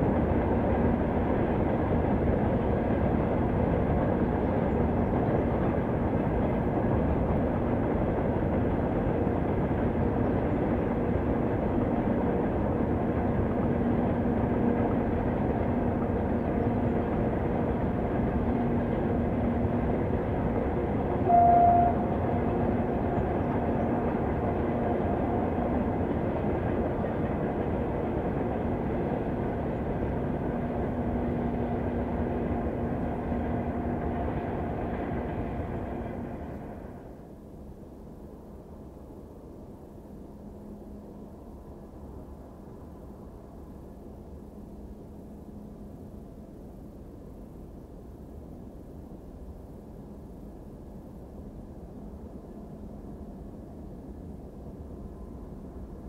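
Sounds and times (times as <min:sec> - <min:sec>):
diesel train engine drone: 0:00.0 - 0:56.0
train horn toot: 0:21.2 - 0:23.3.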